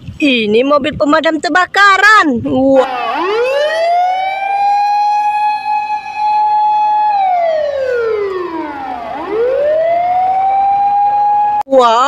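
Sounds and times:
fire engine siren wailing: 0:02.8 - 0:11.7.

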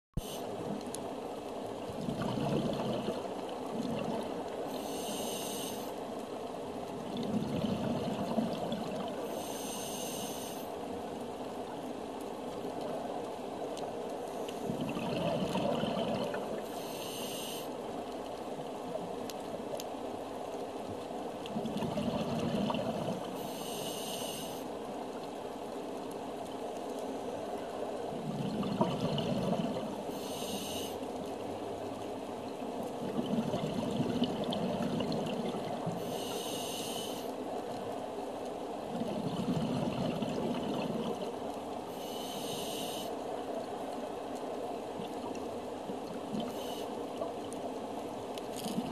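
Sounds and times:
diver breathing through regulator: 0:04.7 - 0:06.0, 0:09.2 - 0:10.7, 0:16.6 - 0:17.7, 0:22.8 - 0:24.6, 0:29.4 - 0:31.0, 0:36.0 - 0:37.3, 0:41.9 - 0:43.2, 0:46.4 - 0:46.9.

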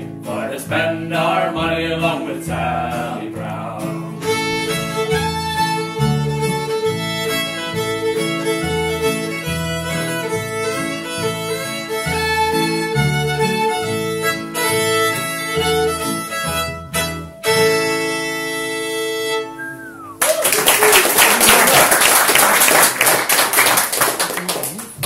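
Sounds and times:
plucked upright bass: 0:00.0 - 0:17.9
strummed acoustic guitar: 0:00.0 - 0:20.0
fiddle melody: 0:00.0 - 0:20.2.

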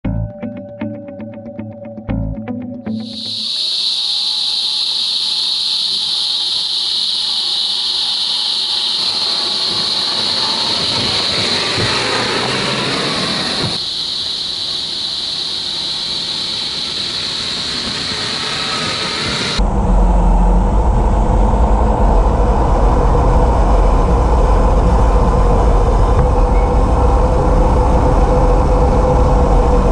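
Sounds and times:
high-pitched hiss: 0:02.9 - 0:20.5
rc car driving on dirt: 0:03.5 - 0:20.6.

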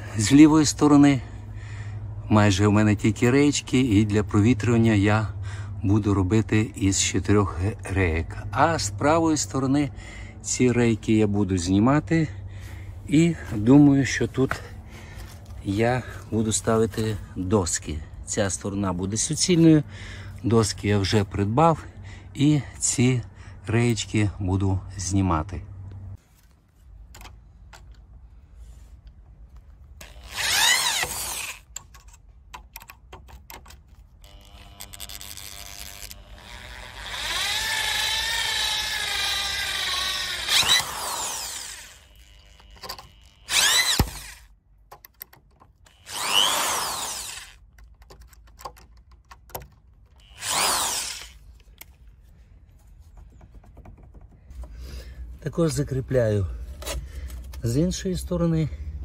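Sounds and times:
cordless drill driving screws: 0:30.0 - 0:31.8, 0:34.2 - 0:44.5, 0:45.9 - 0:47.6, 0:50.2 - 0:51.5.

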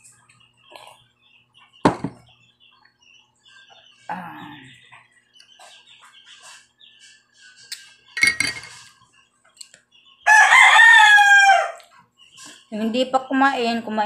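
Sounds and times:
rooster crowing: 0:10.2 - 0:11.9.

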